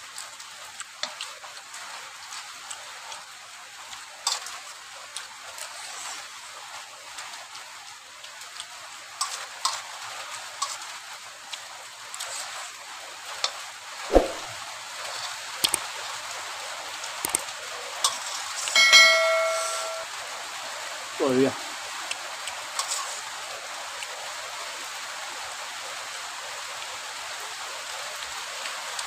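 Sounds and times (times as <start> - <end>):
electronic chime: 18.8 - 20.1
rain hissing: 20.4 - 21.8.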